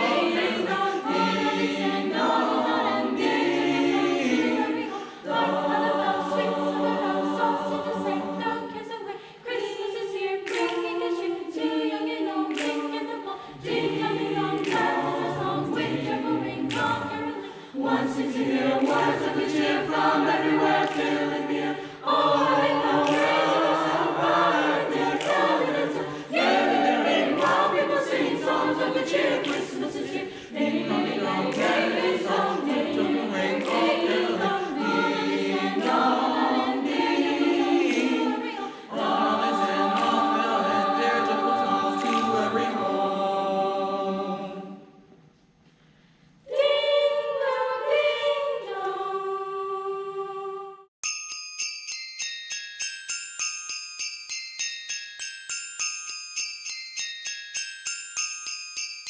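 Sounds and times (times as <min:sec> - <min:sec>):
children's choir singing: 0:00.0 - 0:45.1, 0:46.5 - 0:50.9.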